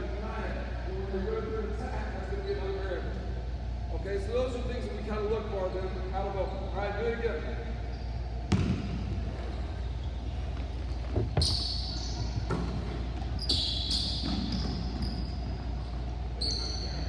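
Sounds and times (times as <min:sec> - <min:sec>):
sneakers squeaking: 0:07.7 - 0:17.0
basketball thudding on wood floor: 0:08.5 - 0:09.0.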